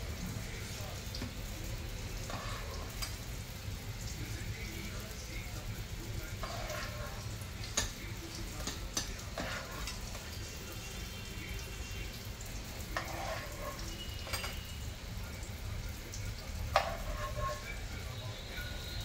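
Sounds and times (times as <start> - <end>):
metal spatula scraping ceramic bowl: 2.2 - 3.0, 6.4 - 7.2, 9.4 - 10.2, 13.0 - 14.6, 16.7 - 17.8.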